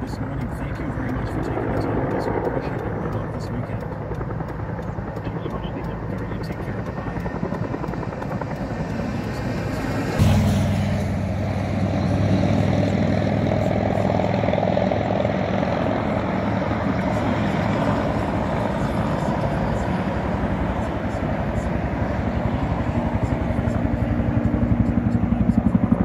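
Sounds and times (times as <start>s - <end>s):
low engine drone: 0.0s - 26.0s.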